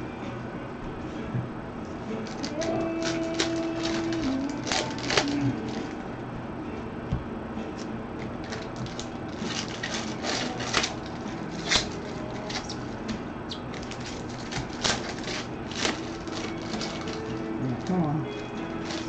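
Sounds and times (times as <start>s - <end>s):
cards rustling: 2.2s - 6.0s, 7.8s - 19.0s
foil wrappers crinkling: 2.2s - 6.0s, 8.2s - 19.0s.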